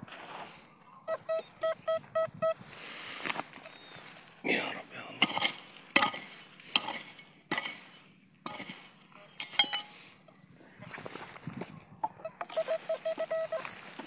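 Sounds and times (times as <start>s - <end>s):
digging tool scraping stony earth: 2.6s - 4.4s, 5.1s - 14.0s.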